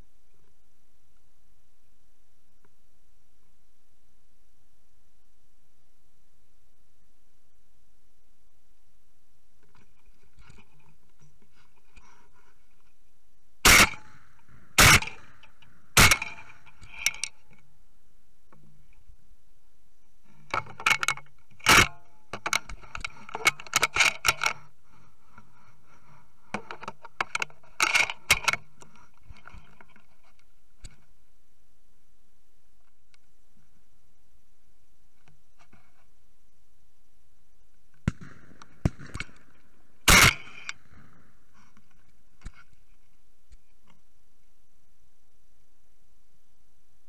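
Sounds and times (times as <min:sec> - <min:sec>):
shotgun shots: 0:13.6 - 0:15.4, 0:16.0 - 0:16.6, 0:38.1 - 0:41.3
gun clicking and rattling: 0:13.7 - 0:17.6.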